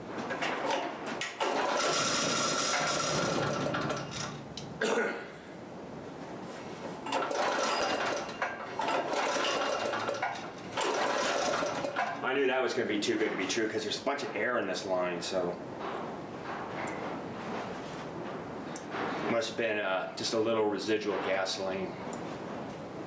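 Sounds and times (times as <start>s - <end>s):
generator engine running: 1.4s - 4.4s.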